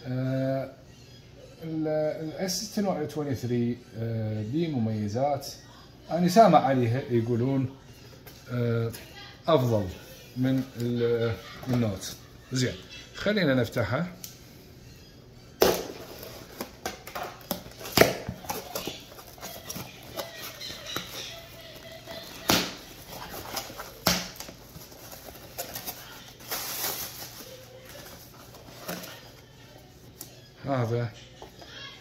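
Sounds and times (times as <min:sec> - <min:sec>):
cardboard scraping and rustling: 0:16.0 - 0:29.3.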